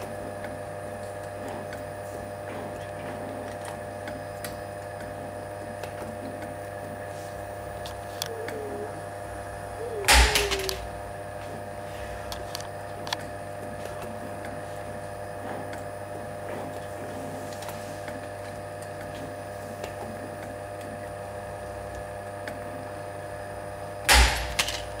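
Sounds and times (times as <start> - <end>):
machine humming: 0.0 - 25.0
metallic clack with rattle: 24.1 - 24.9.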